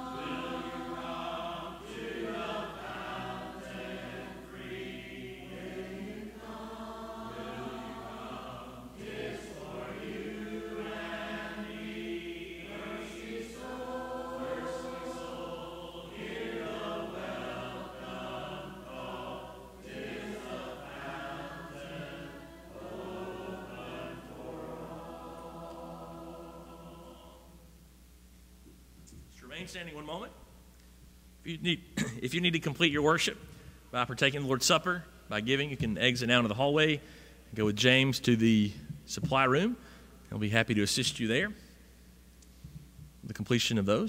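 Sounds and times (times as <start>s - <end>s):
congregation singing a hymn: 0.0s - 27.9s.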